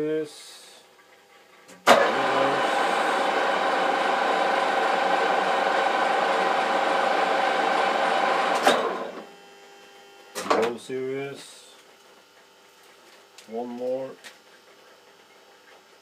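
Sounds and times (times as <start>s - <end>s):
lathe gear whine and motor hum: 1.9s - 9.3s.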